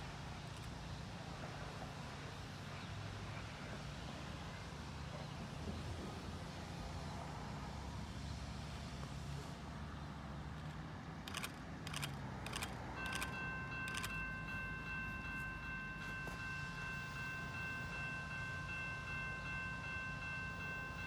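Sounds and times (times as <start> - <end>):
sharp clicks: 11.2 - 13.3
crossing warning bell ringing: 11.3 - 21.0.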